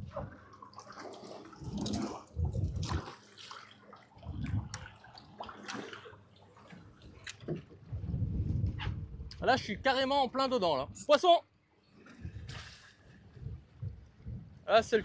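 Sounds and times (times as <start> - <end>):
water splashing against boat hull: 0.0 - 9.1
wind gusting on microphone: 1.6 - 3.1, 4.2 - 4.8, 7.8 - 11.1, 12.1 - 15.0.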